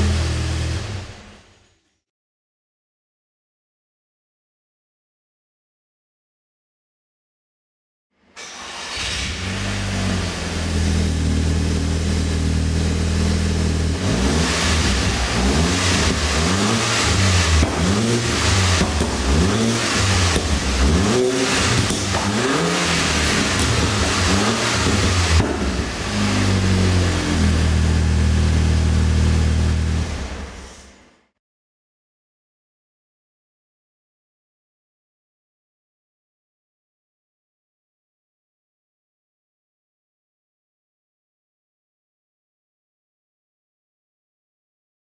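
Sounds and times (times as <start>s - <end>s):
car engine idling and revving: 0.0s - 1.6s, 8.5s - 30.8s.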